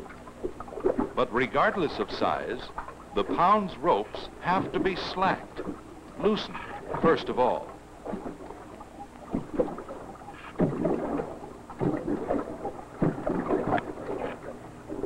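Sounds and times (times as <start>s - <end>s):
water slapping against boat hull: 0.0s - 15.0s.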